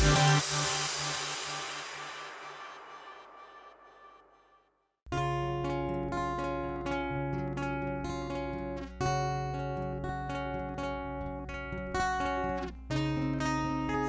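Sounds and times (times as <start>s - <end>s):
fingerstyle acoustic guitar: 5.1s - 14.0s.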